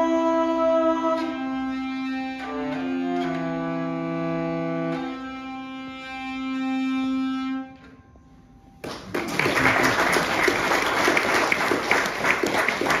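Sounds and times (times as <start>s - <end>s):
hurdy-gurdy drone: 0.0s - 8.8s
applause: 8.8s - 13.0s.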